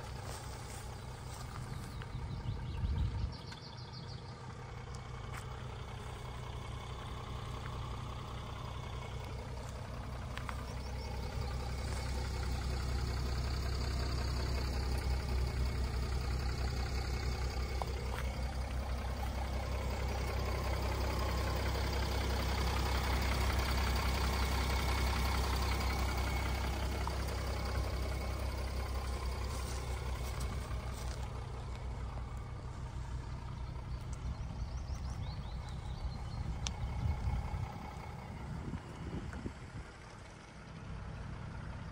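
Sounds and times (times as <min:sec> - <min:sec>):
diesel engine idling: 0:00.0 - 0:41.9.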